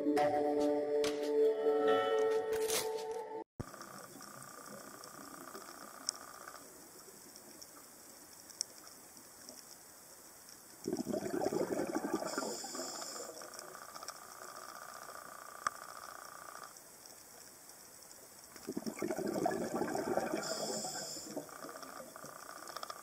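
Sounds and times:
sharp clicks: 3.6 - 10.9, 20.0 - 23.0
exhaled bubbles underwater: 10.9 - 13.4, 18.7 - 22.3
hissing regulator breaths: 12.1 - 13.5, 20.2 - 21.7.

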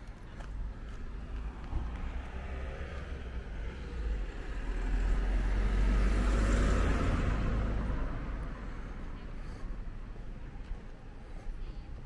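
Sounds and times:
car driving past: 1.2 - 9.8.

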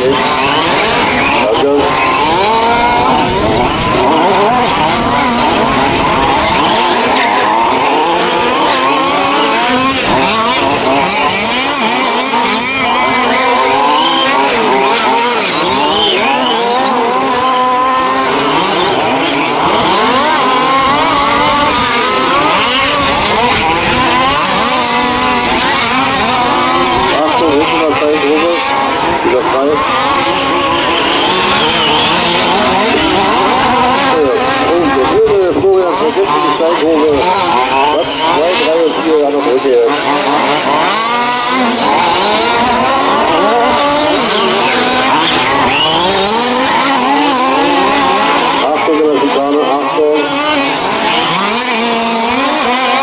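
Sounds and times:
rc truck engines revving: 0.0 - 53.0.

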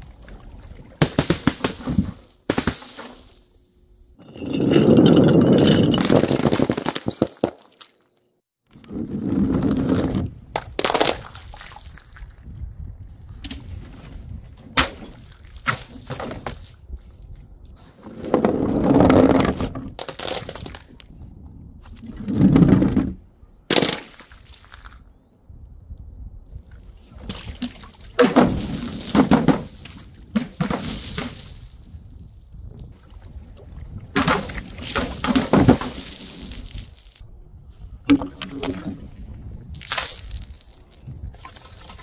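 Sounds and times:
objects rolling down wooden ramp: 4.2 - 7.8, 8.8 - 10.4, 18.0 - 20.8, 22.0 - 23.3, 28.2 - 31.6, 34.2 - 36.8
glass bottles rolling and clattering: 4.2 - 8.1.

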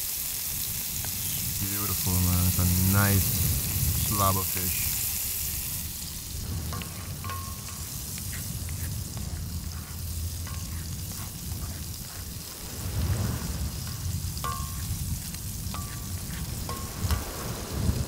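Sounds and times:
fish sizzling in hot oil: 0.0 - 18.0
spoon clicking and scraping pan: 6.7 - 12.2.

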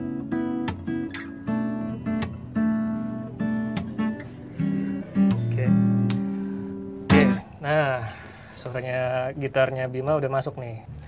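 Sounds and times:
acoustic guitar strummed chords: 0.0 - 8.6.

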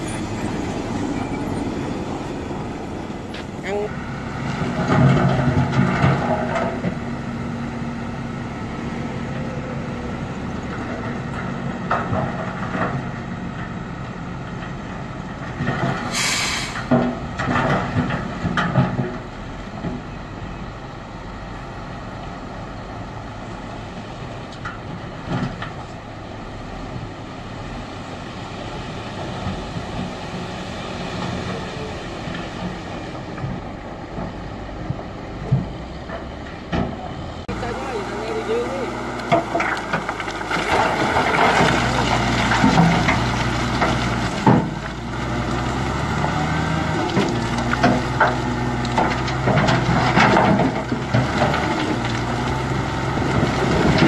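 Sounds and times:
diesel engine running: 0.0 - 54.0
brief hiss: 16.1 - 16.9
soil and rock sliding out: 37.5 - 54.0.

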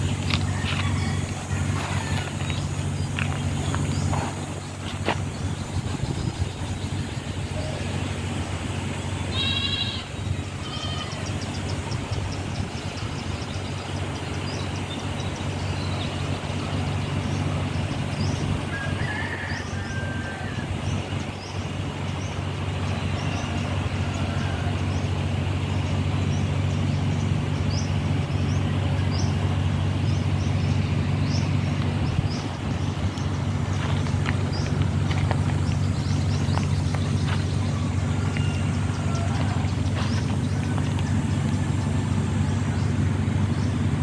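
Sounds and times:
animal call: 9.3 - 11.5.

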